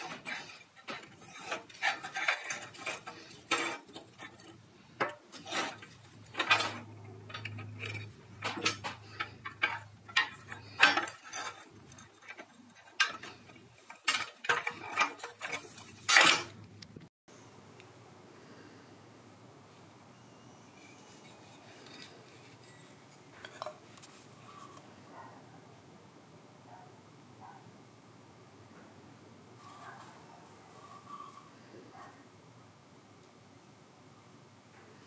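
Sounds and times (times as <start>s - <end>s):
small metal parts clinking: 0.0s - 16.6s.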